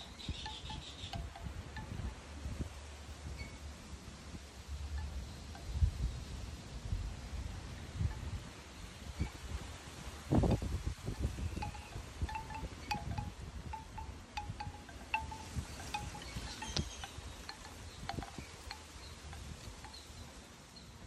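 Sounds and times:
bamboo wind chime clacking: 0:00.0 - 0:02.5, 0:10.5 - 0:20.3
wind buffeting microphone: 0:00.0 - 0:20.4.

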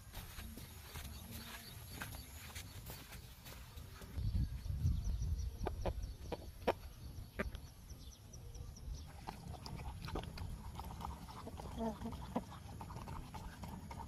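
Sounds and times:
chicken clucking: 0:05.6 - 0:07.6.

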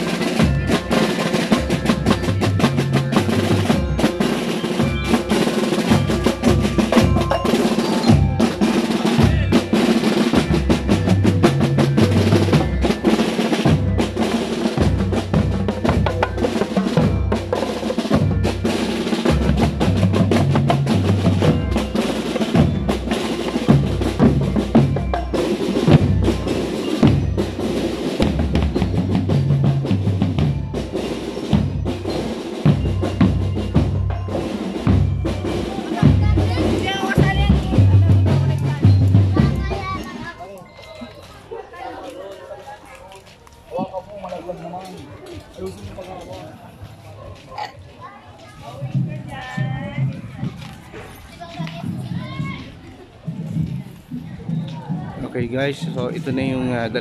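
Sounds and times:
snare drum strokes and rolls: 0:00.0 - 0:40.1
tenor drums: 0:00.0 - 0:41.6, 0:48.4 - 0:57.0
deep bass drum beats: 0:01.5 - 0:18.6, 0:19.3 - 0:27.6, 0:28.2 - 0:30.9, 0:31.5 - 0:40.0.

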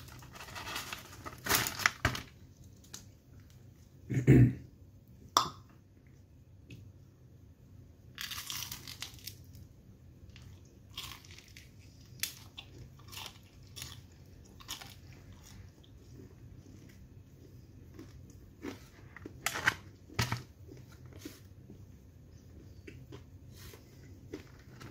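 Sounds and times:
pastry crunching: 0:08.1 - 0:21.8, 0:22.7 - 0:24.9.

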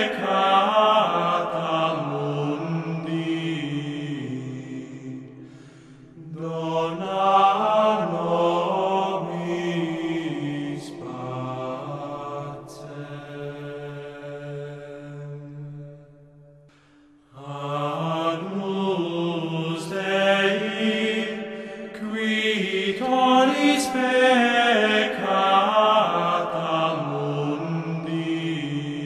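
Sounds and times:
slow chanted singing: 0:00.0 - 0:29.0.

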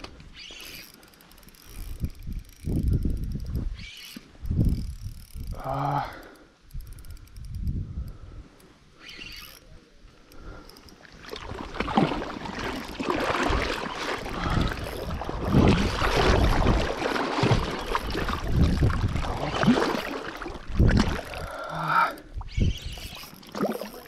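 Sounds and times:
water sloshing and splashing: 0:10.9 - 0:21.7, 0:22.3 - 0:24.0.

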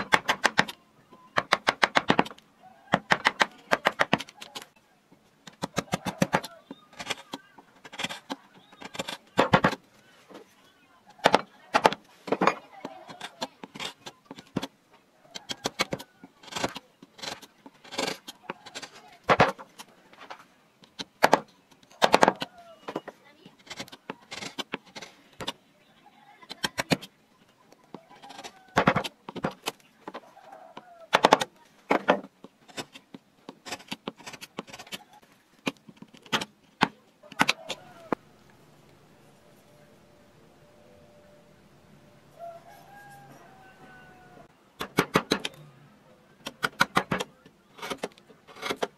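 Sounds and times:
gouge cutting wood chips: 0:05.5 - 0:09.8, 0:12.8 - 0:14.7, 0:15.4 - 0:19.9, 0:23.5 - 0:25.6, 0:31.1 - 0:38.1, 0:46.4 - 0:48.9
gouge scraping wood: 0:15.6 - 0:19.0, 0:32.2 - 0:35.0, 0:46.6 - 0:48.9.

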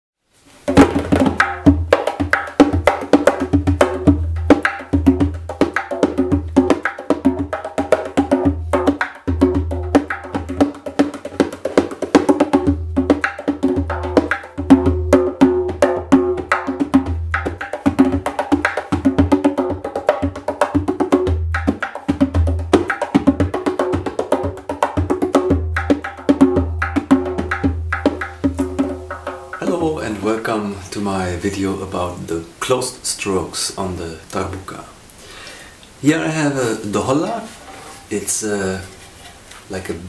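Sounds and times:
bass hand drum rhythm: 0:00.6 - 0:30.8.

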